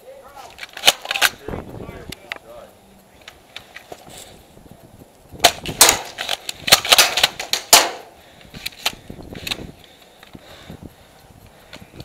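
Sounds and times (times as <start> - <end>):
airsoft gunfire: 5.4 - 8.1.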